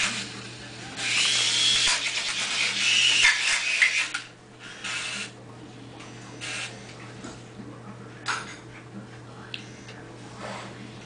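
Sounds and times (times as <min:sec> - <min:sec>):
toy helicopter motor whirring: 0:00.0 - 0:05.3, 0:06.4 - 0:06.8.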